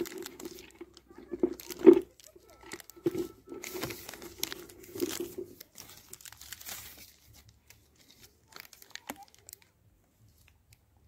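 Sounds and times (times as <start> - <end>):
plastic film crinkling: 0.0 - 10.9.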